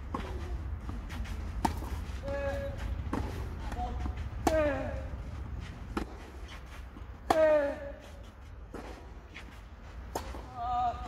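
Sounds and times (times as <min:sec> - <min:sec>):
racket hitting tennis ball: 0:00.0 - 0:08.1, 0:08.7 - 0:10.6.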